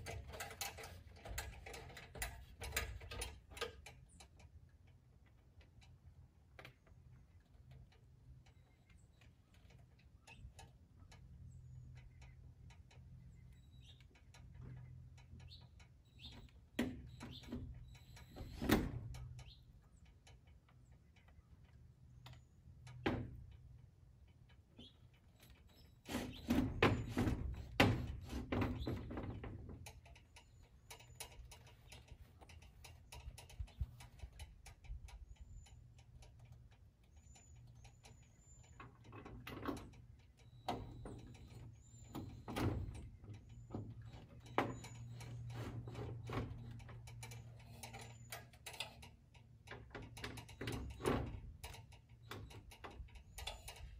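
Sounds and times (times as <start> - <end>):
bird chirps: 11.4 - 18.6, 19.4 - 20.0, 35.0 - 39.1.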